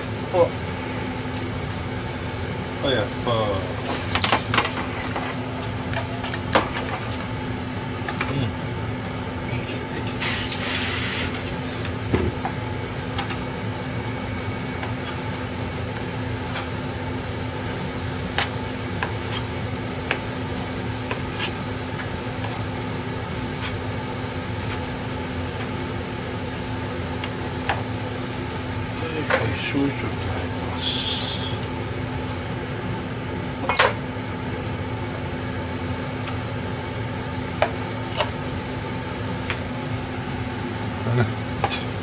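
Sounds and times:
steady hum: 0.0s - 42.0s
sauce bubbling in saucepan: 10.2s - 29.0s
short hiss: 30.8s - 31.6s.

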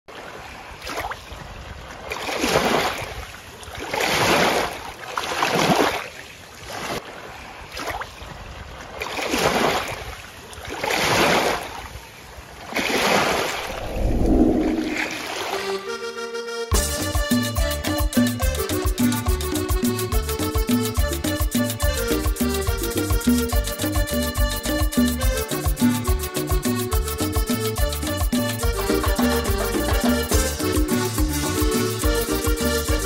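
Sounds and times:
small waves washing on sand: 0.1s - 14.0s.

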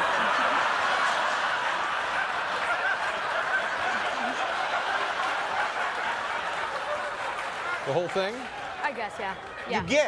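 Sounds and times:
audience laughing: 0.0s - 7.8s.

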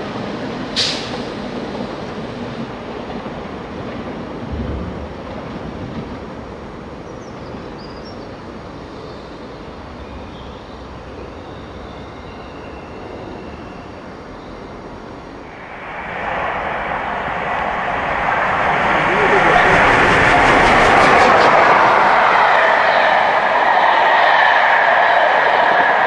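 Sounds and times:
distant train rumble and rail noise: 0.0s - 26.0s
rushing noise: 12.5s - 26.0s.

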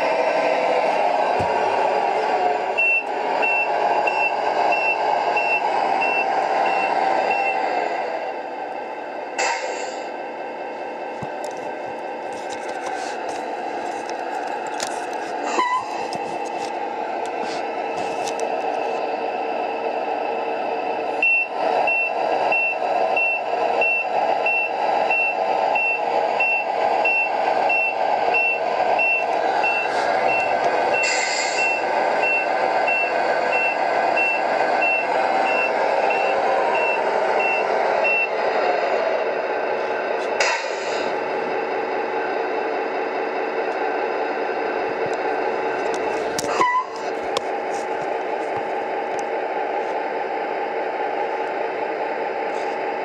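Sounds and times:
diesel engine running: 0.0s - 53.0s
reversing beeper: 2.7s - 7.7s, 15.4s - 16.1s, 21.2s - 38.4s, 46.5s - 47.0s.

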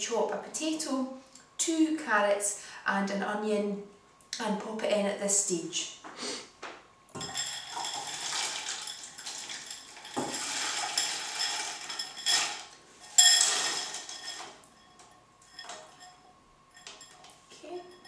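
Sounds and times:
frozen vegetables clattering into pan: 7.2s - 16.0s.

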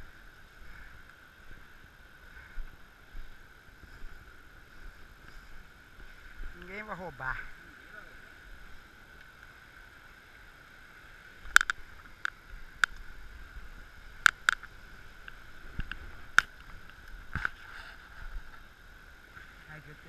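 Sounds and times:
steady hiss: 0.0s - 20.0s
sharp clicks and knocks: 11.5s - 13.0s.

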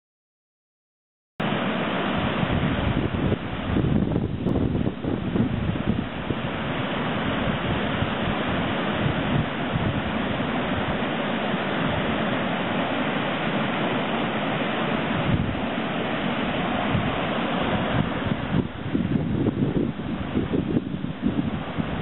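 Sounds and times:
floodwater rushing over a drop: 1.4s - 22.0s.

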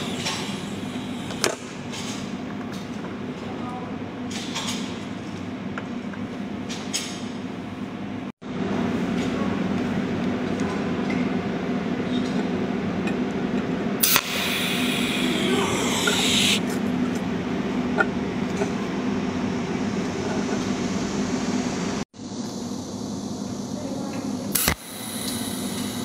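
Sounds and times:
welding machine humming: 0.0s - 1.5s, 14.0s - 16.6s, 24.5s - 26.0s.

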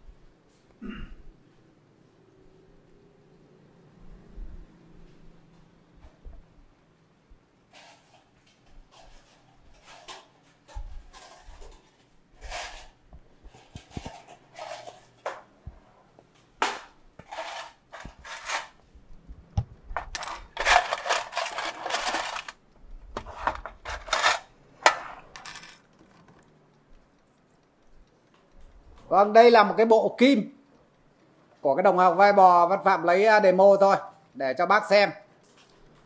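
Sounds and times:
metal parts rattling in a tin: 20.2s - 22.6s, 23.4s - 25.8s.

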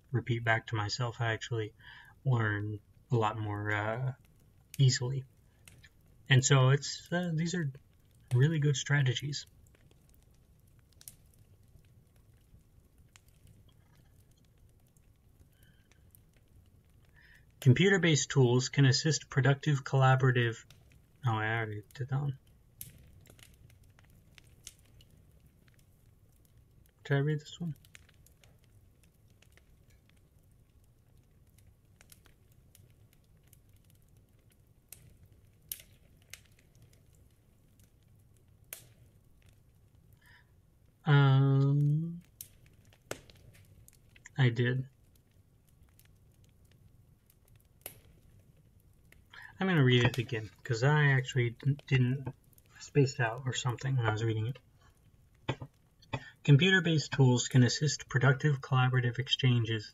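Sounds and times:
faint clicks: 9.3s - 17.8s, 20.4s - 40.5s, 41.8s - 56.5s.

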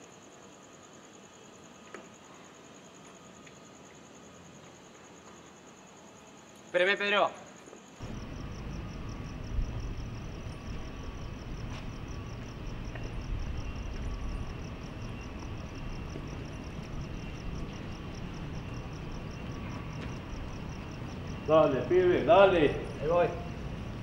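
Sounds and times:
cricket chirping: 0.0s - 24.0s
low background rumble: 8.0s - 24.0s.

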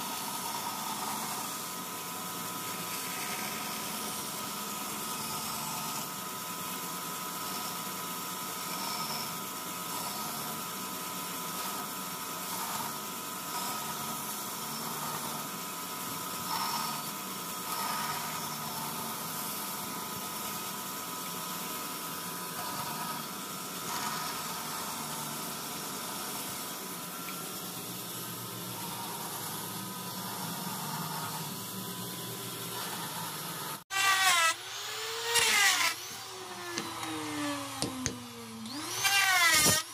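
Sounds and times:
band saw cutting wood: 0.0s - 39.9s
electric grinder shaping wood: 0.0s - 39.9s.

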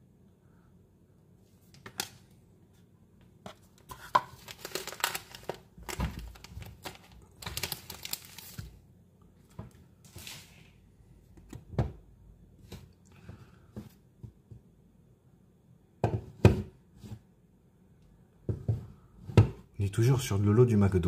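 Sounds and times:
trading cards rustling and flicking: 4.0s - 8.7s.

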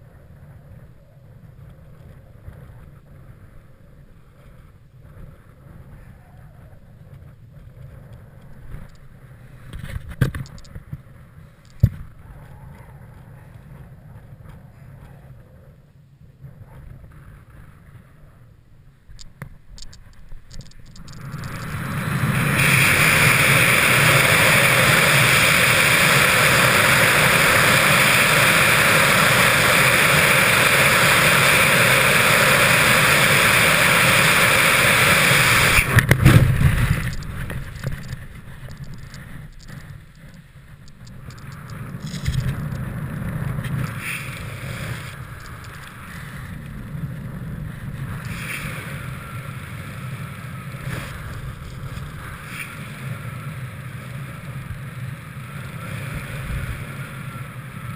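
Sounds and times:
freefall wind rush on microphone: 0.0s - 57.9s.

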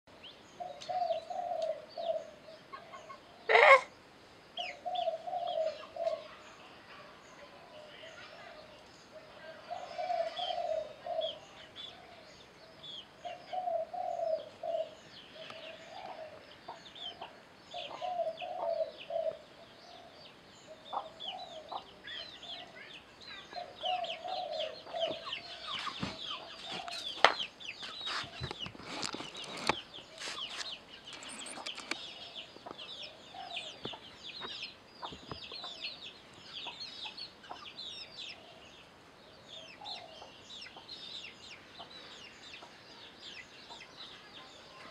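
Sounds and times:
chicken clucking: 2.7s - 3.9s, 23.6s - 32.0s
high chirping: 20.7s - 38.5s.

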